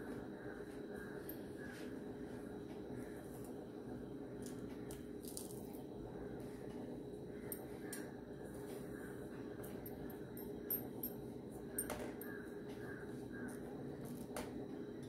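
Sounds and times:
charred skin crackling as peeled: 4.4s - 5.8s.

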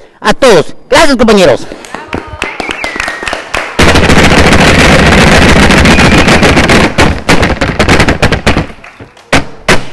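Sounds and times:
hands clapping: 1.7s - 3.8s, 8.7s - 9.3s.

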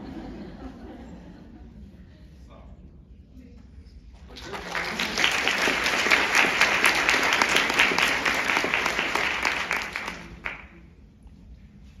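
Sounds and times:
audience applauding: 4.3s - 10.8s
hands clapping close by: 4.3s - 10.8s.

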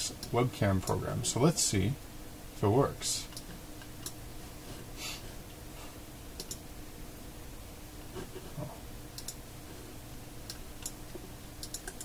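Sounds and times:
faint steady hum: 0.0s - 12.0s
computer clicks: 6.4s - 6.6s, 9.1s - 9.4s, 10.4s - 11.0s, 11.6s - 12.0s.

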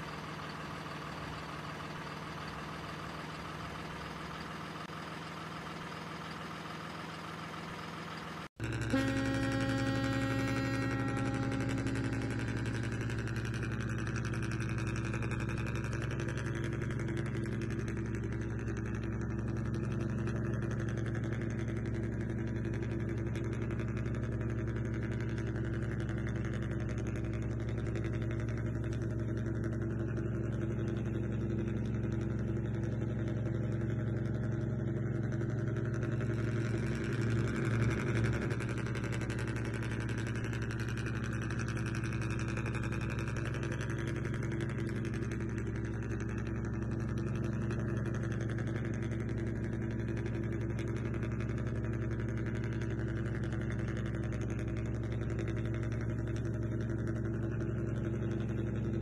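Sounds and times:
model boat engine droning: 8.6s - 29.9s, 35.7s - 58.7s.

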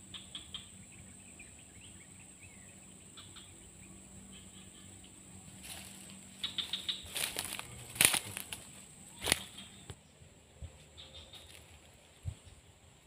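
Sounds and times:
faint background noise: 0.0s - 13.0s
close rustling: 5.6s - 9.7s.

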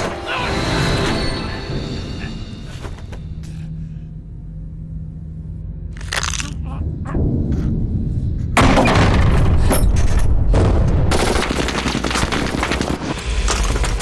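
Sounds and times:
low rumble: 3.4s - 11.2s.

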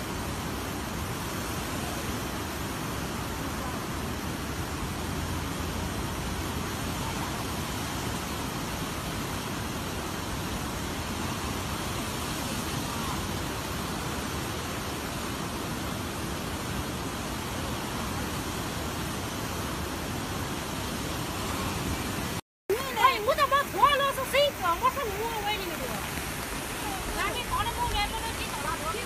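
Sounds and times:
flooded river rushing: 0.0s - 29.0s.

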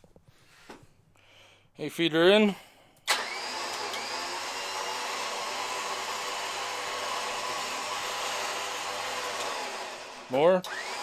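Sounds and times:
electric winch whirring: 3.1s - 11.0s.

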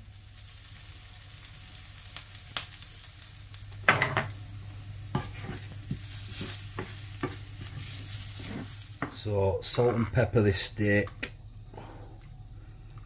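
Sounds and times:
onions sizzling in a pan: 0.0s - 13.0s
spatula knocking and scraping pan: 5.1s - 10.2s.

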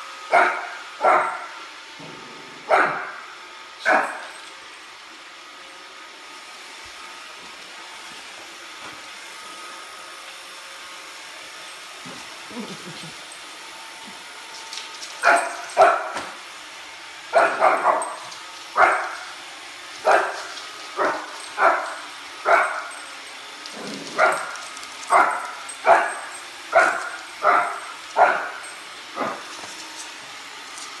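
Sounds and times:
robot vacuum humming: 0.0s - 31.0s
puppy barking: 0.3s - 1.5s, 2.7s - 4.4s, 15.2s - 16.3s, 17.3s - 19.4s, 20.0s - 23.0s, 24.0s - 29.4s.

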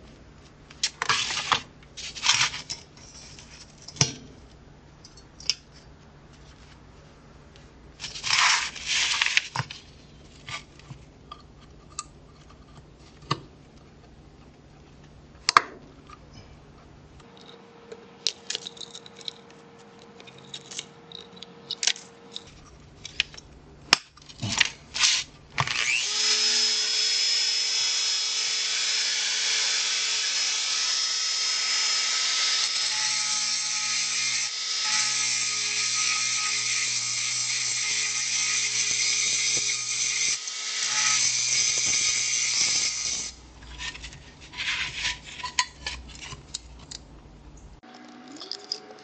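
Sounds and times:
metal clicks and scrapes: 18.2s - 25.3s, 43.6s - 47.1s
rotary tool whining: 25.0s - 43.4s.

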